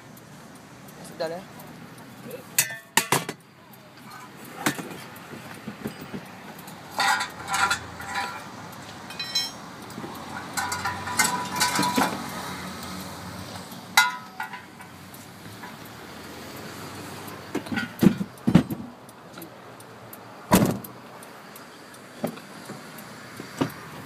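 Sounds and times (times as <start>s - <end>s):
metal wheel clamp clinking: 2.6s - 3.5s, 5.7s - 12.3s, 13.8s - 15.0s, 17.6s - 18.8s.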